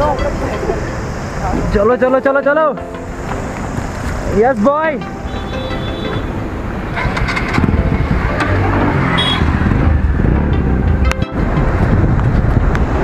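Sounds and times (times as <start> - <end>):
road noise: 0.0 - 13.0
motorcycle engine running: 6.8 - 12.7.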